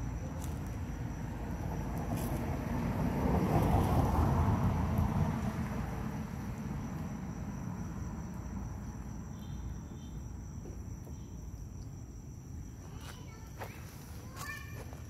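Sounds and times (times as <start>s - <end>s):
high-pitched insect drone: 5.8s - 15.0s.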